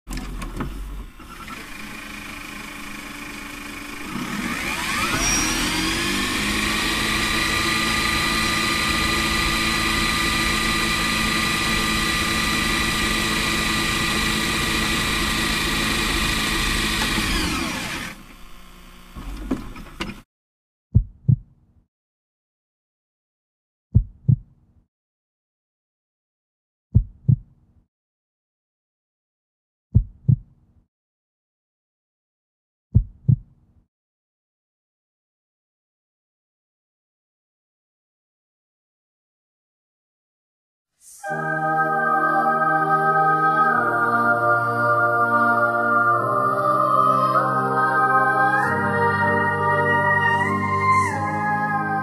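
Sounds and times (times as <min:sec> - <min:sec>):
motor whining: 0:00.1 - 0:20.0, 0:44.8 - 0:52.0.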